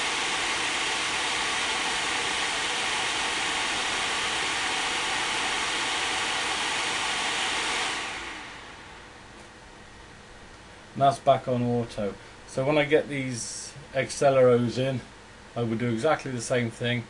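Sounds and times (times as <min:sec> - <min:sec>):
graphics card fans rushing: 0:00.0 - 0:09.6.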